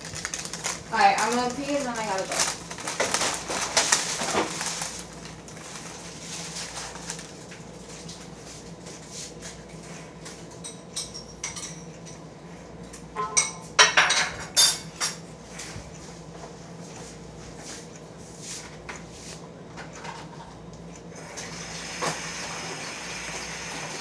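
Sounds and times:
dishes and cutlery clinking: 10.6s - 12.2s, 13.2s - 15.2s.

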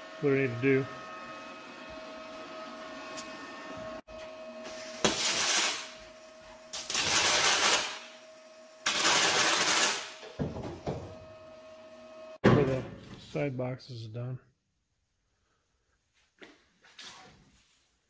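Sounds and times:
arc welding hiss: 4.7s - 6.0s, 6.7s - 8.2s, 8.8s - 10.2s.

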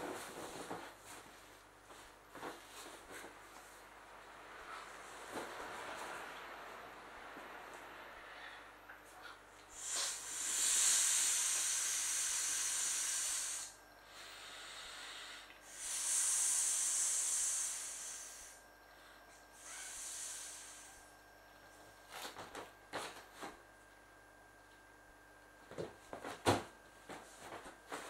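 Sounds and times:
breath blown into inflatable toy: 9.7s - 18.6s, 19.6s - 21.0s.

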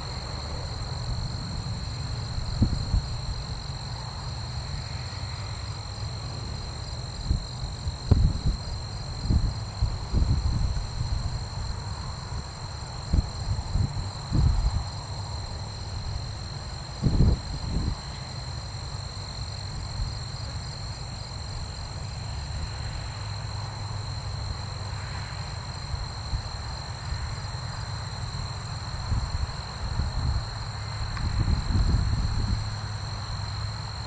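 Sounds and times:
distant aircraft engines droning: 0.0s - 34.0s
wind buffeting microphone: 1.8s - 3.3s, 7.2s - 11.6s, 13.1s - 15.0s, 17.0s - 18.0s, 29.1s - 32.8s.

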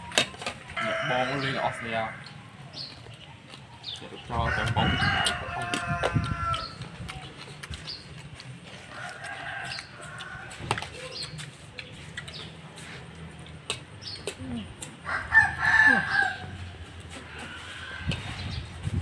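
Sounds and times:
rooster crowing: 0.8s - 2.4s, 4.4s - 6.8s, 15.0s - 16.6s.

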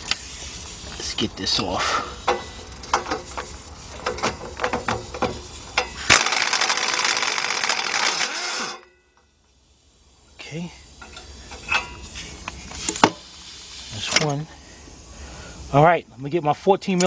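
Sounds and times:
power wrench rattling: 2.2s - 8.9s.

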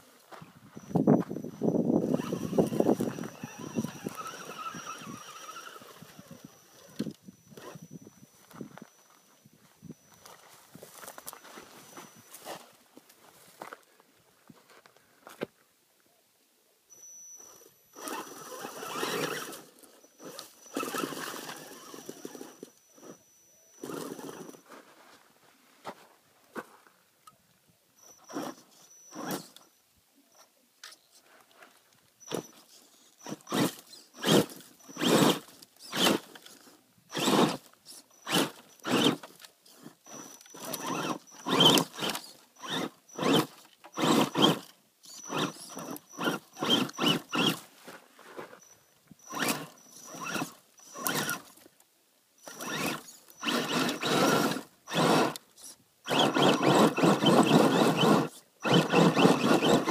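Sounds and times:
rc car electric motor whining: 0.8s - 9.2s, 16.9s - 24.6s, 28.0s - 29.7s, 32.2s - 47.6s, 48.6s - 51.7s, 52.4s - 59.9s.

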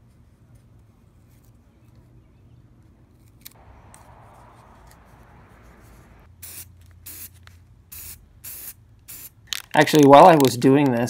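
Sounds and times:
spray paint can bursts: 6.4s - 9.7s.

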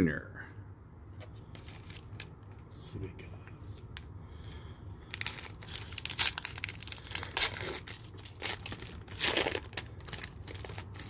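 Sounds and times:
foil wrapper crinkling and tearing: 1.5s - 2.4s, 5.1s - 11.0s.

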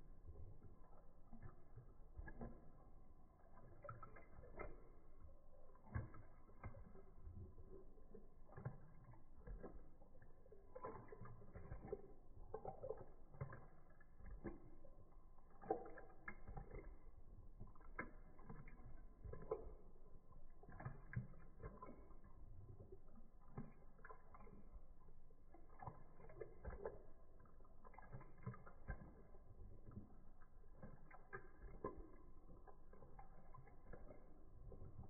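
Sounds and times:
puppy lapping milk: 0.0s - 35.0s.

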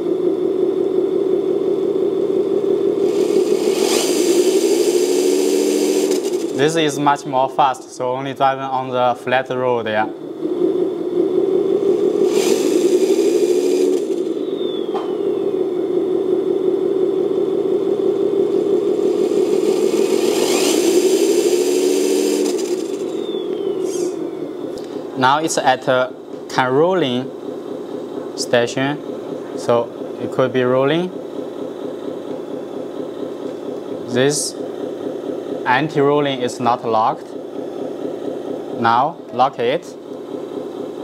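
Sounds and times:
electric motor drivetrain whir: 0.0s - 7.4s, 10.4s - 41.0s
toy car drivetrain whirring: 3.0s - 6.6s, 12.2s - 14.4s, 18.9s - 24.2s.

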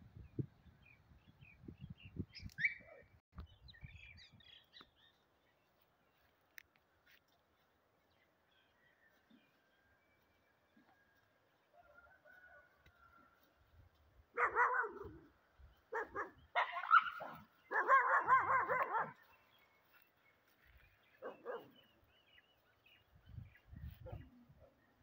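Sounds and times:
dogs barking and yelping: 14.3s - 19.4s, 21.2s - 21.9s.

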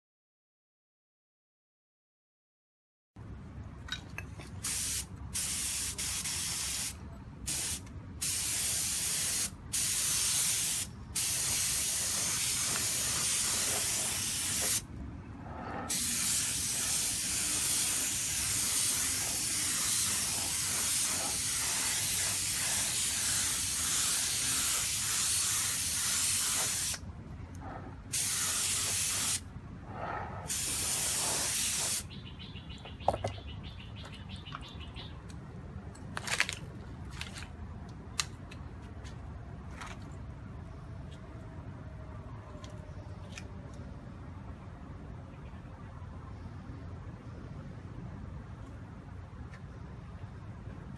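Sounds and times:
spray gun hissing: 4.6s - 14.8s, 15.9s - 27.0s, 28.1s - 29.4s, 30.4s - 32.0s
steady low hum: 12.1s - 25.2s, 27.0s - 31.4s.

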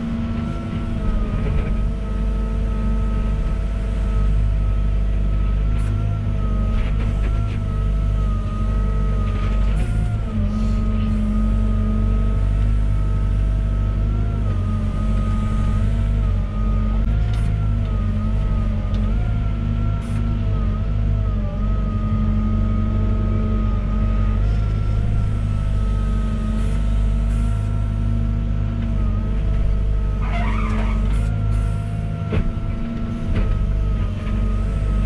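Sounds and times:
excavator diesel engine whining: 0.0s - 35.0s.

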